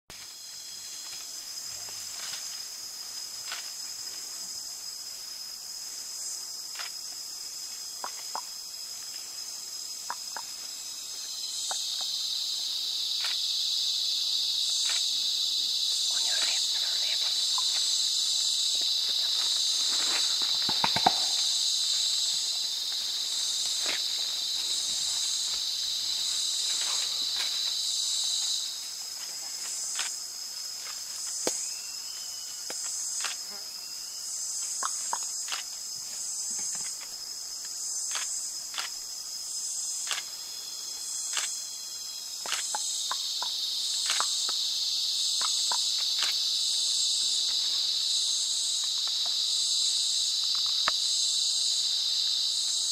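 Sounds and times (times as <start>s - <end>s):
clicks and rustles in leaves: 0.1s - 4.6s, 16.0s - 33.5s
pulsing insect trill: 0.1s - 52.9s
high-pitched insect buzz: 0.2s - 52.9s.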